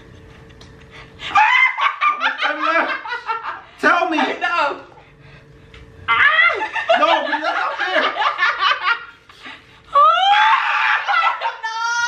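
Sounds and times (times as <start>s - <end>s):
woman laughing hard: 1.3s - 3.6s, 6.2s - 12.0s.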